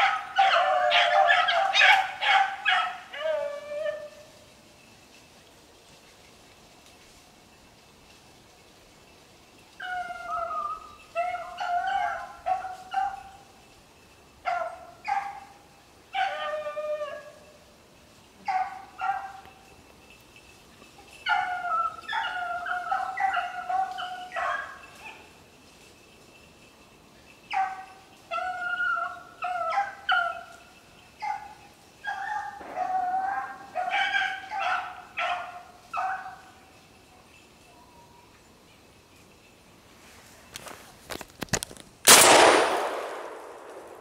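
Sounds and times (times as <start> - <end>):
hounds baying: 0.0 - 4.3, 9.8 - 13.6, 14.4 - 17.6, 18.4 - 19.7, 20.7 - 25.4, 27.4 - 36.7.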